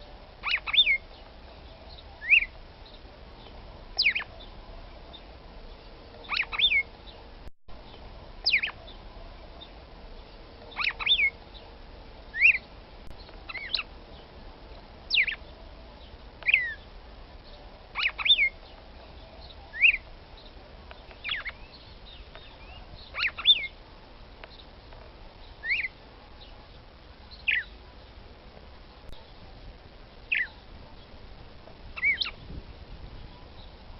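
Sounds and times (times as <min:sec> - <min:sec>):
bird calling sharp notes: 0:00.4 - 0:02.6, 0:04.0 - 0:04.5, 0:06.2 - 0:06.9, 0:08.4 - 0:08.9, 0:10.7 - 0:11.4, 0:12.3 - 0:12.7, 0:13.4 - 0:13.9, 0:15.1 - 0:15.5, 0:17.9 - 0:20.1, 0:21.1 - 0:23.8, 0:32.0 - 0:32.4.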